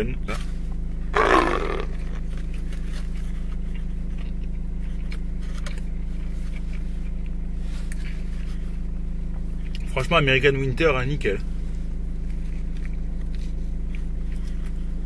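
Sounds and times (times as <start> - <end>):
chewing with faint crunches: 0.3 - 15.0
biting into a soft bun: 1.2 - 8.6.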